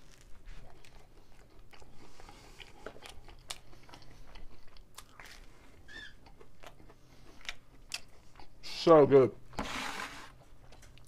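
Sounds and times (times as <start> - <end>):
chewing crunchy pizza crust: 0.0 - 8.8.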